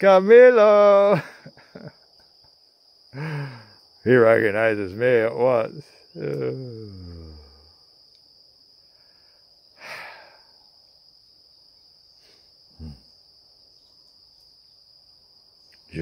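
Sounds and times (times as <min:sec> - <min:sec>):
insects buzzing high note: 0:00.0 - 0:16.0
short breath: 0:03.2 - 0:03.7, 0:08.9 - 0:10.6.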